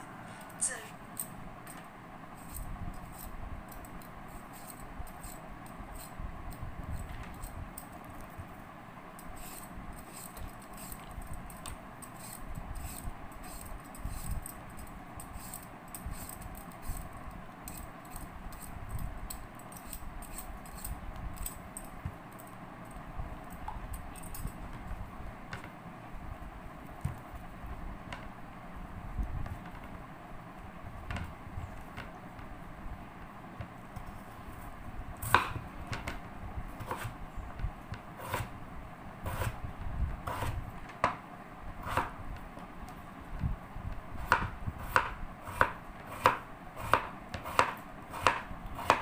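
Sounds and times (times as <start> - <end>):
steady low hum: 0.0 - 49.0
light clinking and rattling: 17.7 - 24.8.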